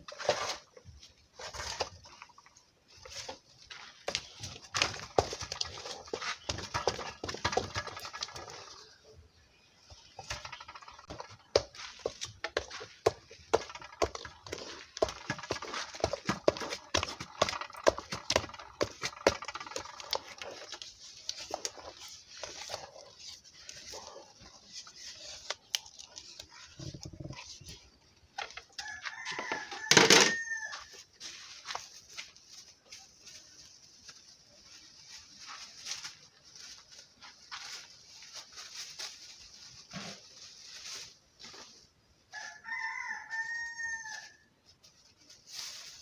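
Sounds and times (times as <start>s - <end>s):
wooden stick knocking metal pot: 10.3s - 20.8s.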